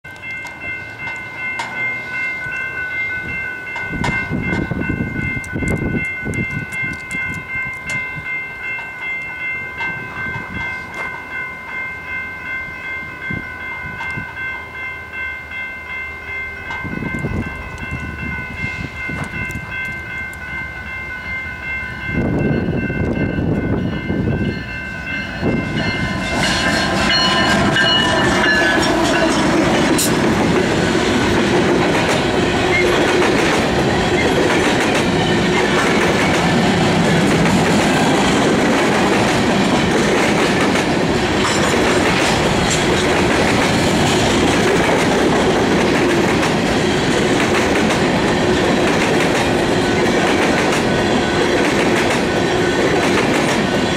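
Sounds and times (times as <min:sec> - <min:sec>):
crossing warning bell ringing: 0:00.0 - 0:53.9
diesel locomotives rumbling: 0:00.1 - 0:53.9
locomotive horn: 0:26.0 - 0:30.2.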